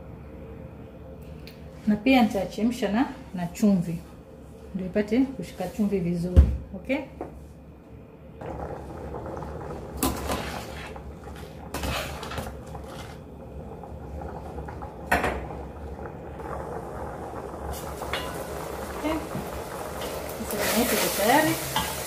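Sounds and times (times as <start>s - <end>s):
pasta boiling in a pot: 8.4s - 22.0s.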